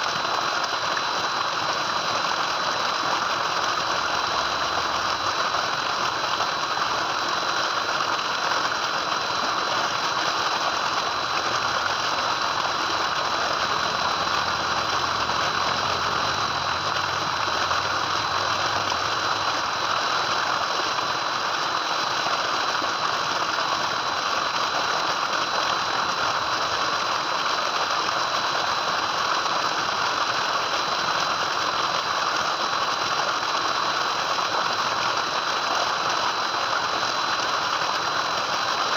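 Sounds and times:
water gushing into a tank: 0.0s - 38.9s.

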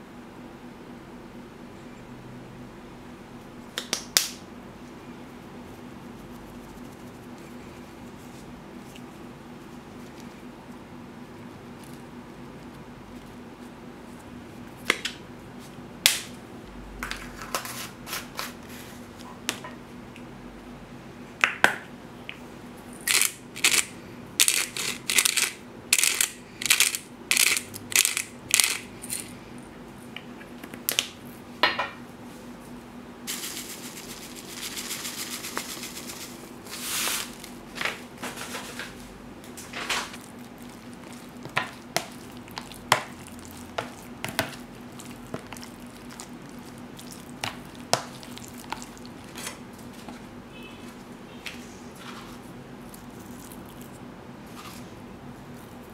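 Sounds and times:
faint steady hum: 0.0s - 55.9s
scraping or rustling: 33.3s - 41.7s.

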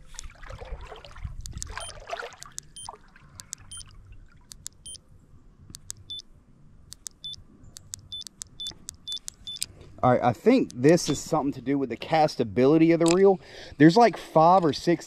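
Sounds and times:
water sloshing in a creek: 0.0s - 5.2s, 13.0s - 15.0s.

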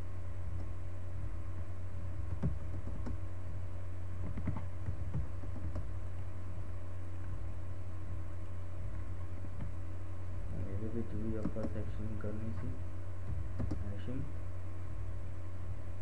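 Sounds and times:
low electrical hum: 0.0s - 16.0s
keyboard and mouse clicks: 2.3s - 3.2s, 4.2s - 6.2s, 11.3s - 11.8s, 13.3s - 13.9s.

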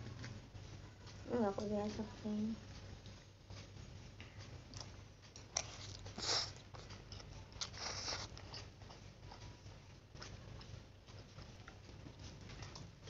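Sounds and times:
chewing noodles: 2.6s - 13.0s.

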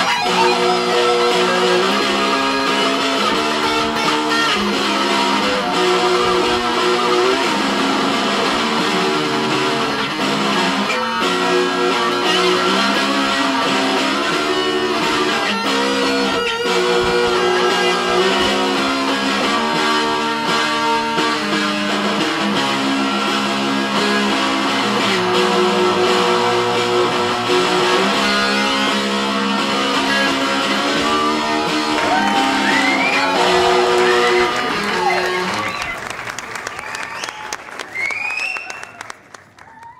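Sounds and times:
electric guitar duet: 0.0s - 39.3s.

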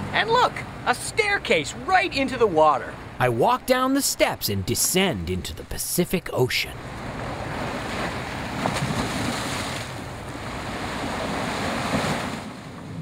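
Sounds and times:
ocean surf washing over rocks: 6.7s - 13.0s.

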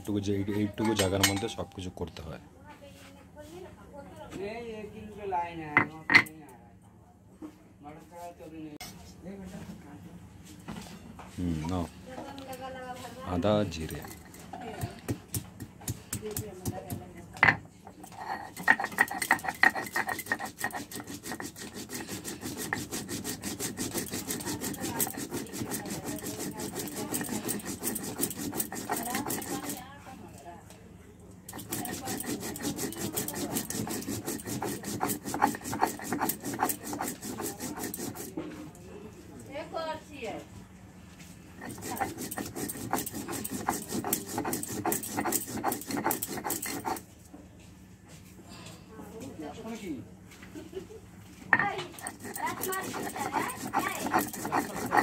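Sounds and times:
stone scraping on stone: 13.4s - 15.1s, 17.4s - 29.9s, 31.5s - 38.4s, 41.6s - 47.1s, 51.5s - 55.0s.

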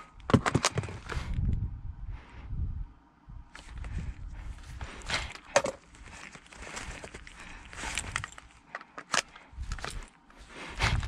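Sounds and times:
shuffling footsteps: 3.6s - 8.7s
rifle handling clicks and rustling: 5.0s - 10.4s.

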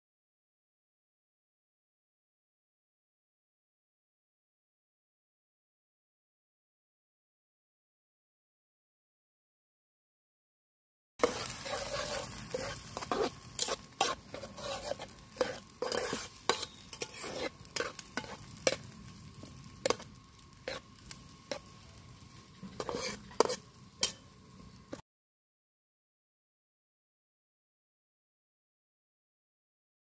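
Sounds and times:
eggs sizzling: 11.2s - 25.0s
spatula scraping frying pan: 11.2s - 25.0s.

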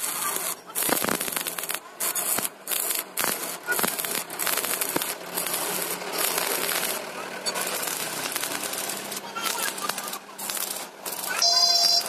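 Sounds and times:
arc welding crackling sizzle: 0.0s - 12.0s.

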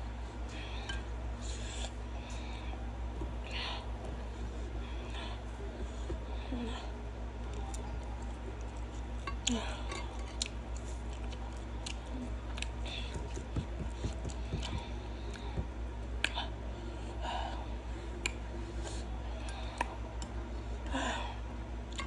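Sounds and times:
chewing and mouth sounds: 7.4s - 15.6s.

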